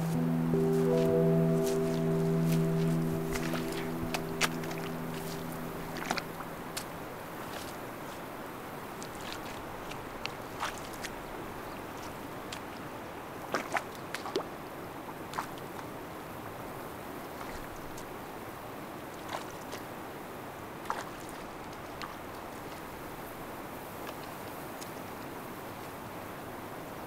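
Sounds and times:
running water: 0:00.0 - 0:14.4.

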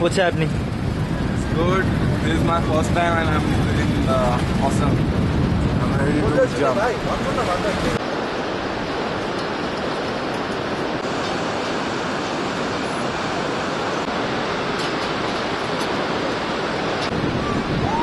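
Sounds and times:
river rapids rushing: 0:06.6 - 0:18.0.

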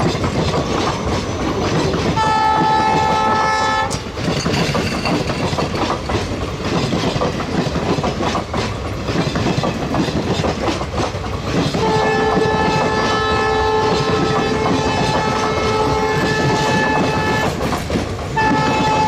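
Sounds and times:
train wheels clattering over rails: 0:00.0 - 0:19.0
locomotive horn: 0:02.2 - 0:04.0, 0:11.8 - 0:17.6, 0:18.4 - 0:19.0.

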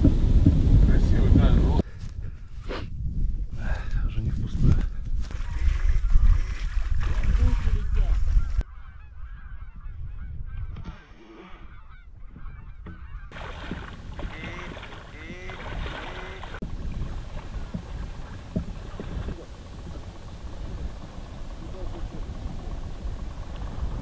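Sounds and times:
waterfowl calling: 0:08.4 - 0:16.6.

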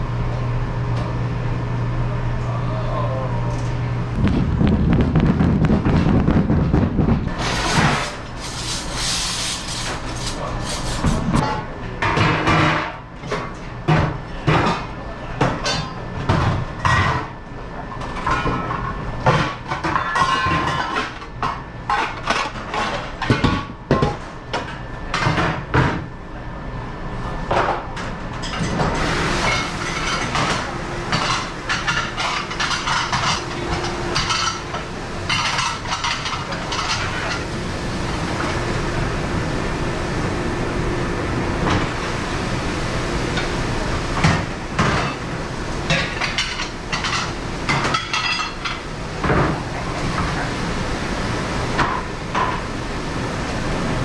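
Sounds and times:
kitchen machinery running: 0:00.0 - 0:54.0
plates and dish racks clattering: 0:07.4 - 0:17.4, 0:18.0 - 0:26.0, 0:28.4 - 0:37.6, 0:44.2 - 0:45.2, 0:45.9 - 0:50.5.

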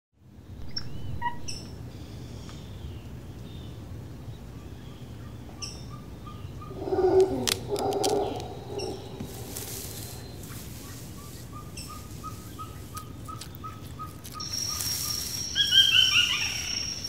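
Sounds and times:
low background noise: 0:00.2 - 0:17.0
birds chirping: 0:00.5 - 0:17.0
lower call with sharp clicks: 0:06.6 - 0:17.0.

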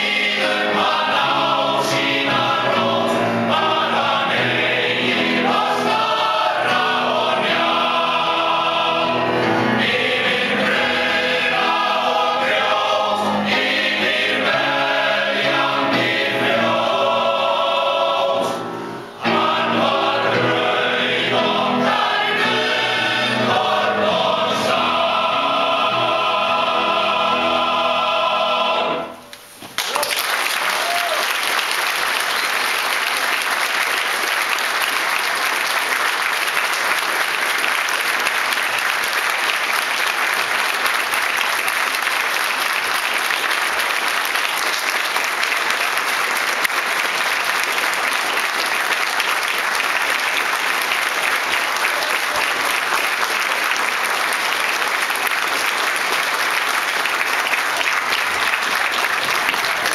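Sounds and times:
audience applauding: 0:29.3 - 0:59.9.

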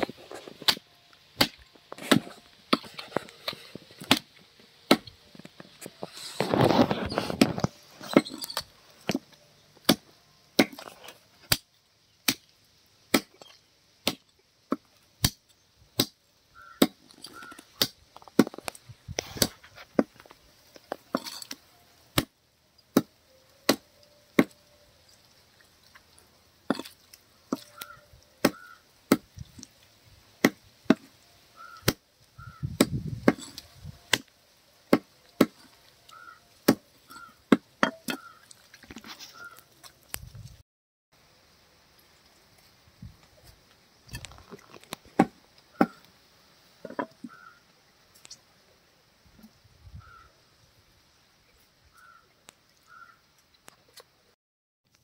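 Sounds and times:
cleaver chopping on wooden block: 0:30.4 - 0:31.1.

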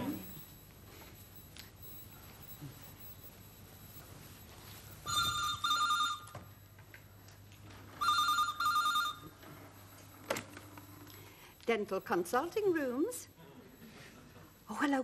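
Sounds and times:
telephone double ring: 0:05.0 - 0:06.5, 0:08.0 - 0:09.4.

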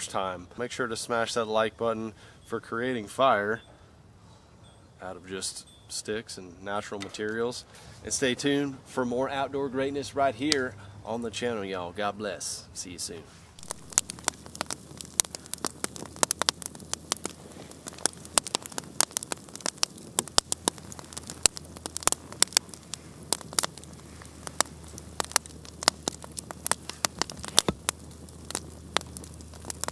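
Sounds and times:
campfire crackling and popping: 0:13.5 - 0:29.9.

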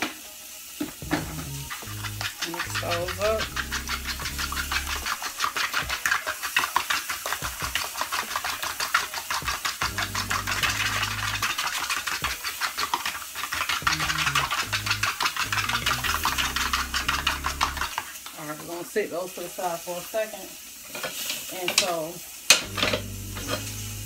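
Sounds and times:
fork whisking eggs in plastic bowl: 0:01.0 - 0:18.2.

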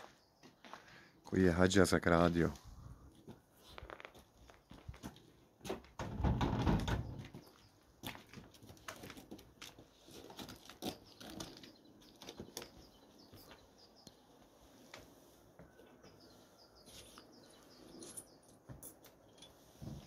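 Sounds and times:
wooden door opening: 0:06.0 - 0:07.3.

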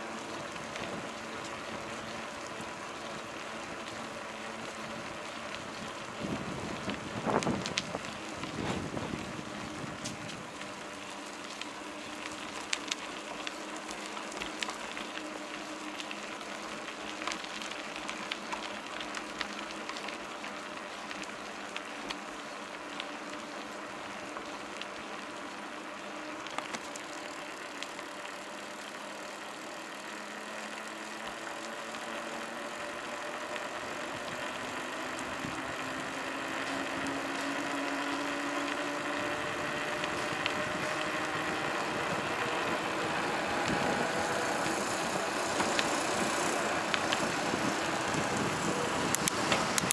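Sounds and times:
bicycle clicks and rattles: 0:00.0 - 0:49.9
bicycle tyre and wind noise: 0:00.0 - 0:49.9
van passing: 0:25.0 - 0:49.9.

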